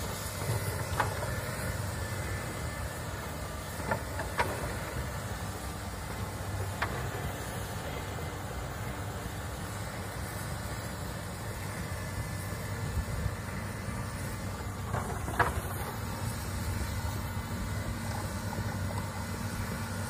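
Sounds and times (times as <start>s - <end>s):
excavator diesel engine running: 0.0s - 20.0s.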